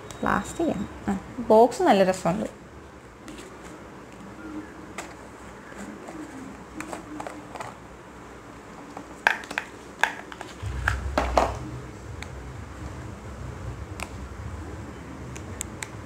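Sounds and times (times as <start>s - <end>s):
low rumble: 10.6s - 15.6s.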